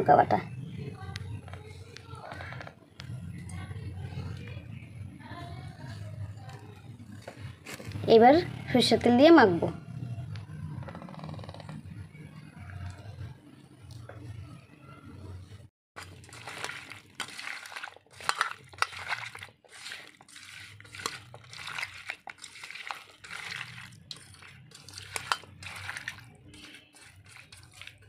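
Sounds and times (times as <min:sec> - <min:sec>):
hand squelching food: 0:16.0 - 0:28.0.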